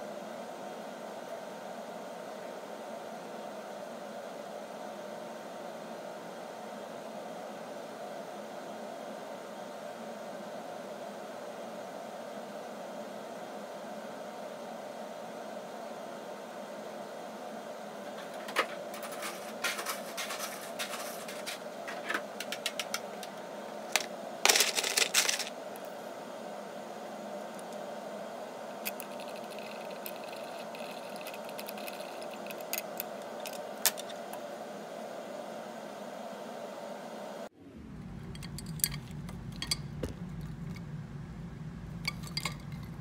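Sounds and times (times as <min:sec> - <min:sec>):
room hum: 0:00.0 - 0:43.0
ice cubes cracking: 0:24.5 - 0:25.5, 0:28.9 - 0:34.1.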